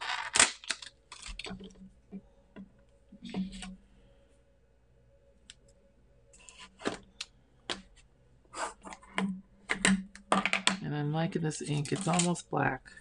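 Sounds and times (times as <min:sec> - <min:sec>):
plastic cases clicking and tapping: 0:08.9 - 0:10.8.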